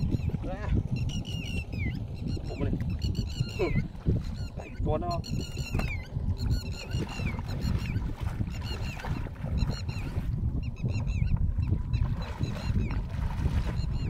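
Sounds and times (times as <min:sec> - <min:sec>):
birds chirping: 0:00.0 - 0:14.0
wind rumble on microphone: 0:00.0 - 0:14.0
bare feet splashing in water: 0:06.8 - 0:10.3, 0:12.1 - 0:14.0.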